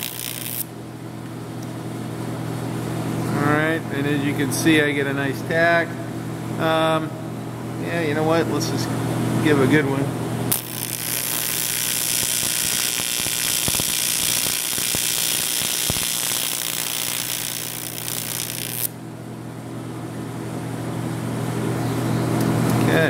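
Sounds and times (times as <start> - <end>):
welding arc buzzing and hissing: 0.0 - 0.7, 10.5 - 19.0
low machine hum: 0.0 - 23.0.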